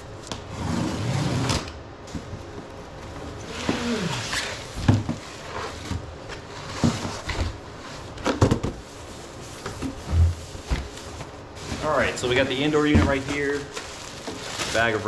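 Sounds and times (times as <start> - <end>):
cardboard rustling: 3.4 - 15.0.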